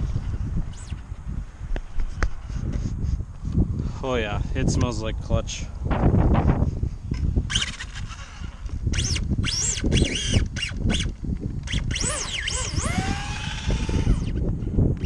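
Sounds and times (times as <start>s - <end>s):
toy truck motor whining: 0.7s - 1.0s, 7.5s - 14.4s.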